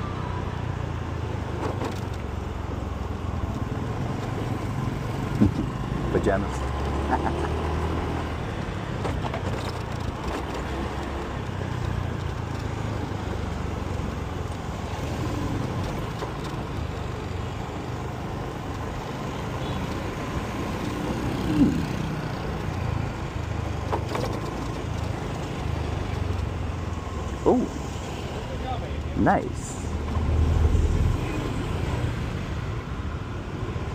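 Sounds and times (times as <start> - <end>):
surrounding cars and trucks: 0.0 - 33.9
motorcycle engine: 3.6 - 8.6, 19.0 - 28.2.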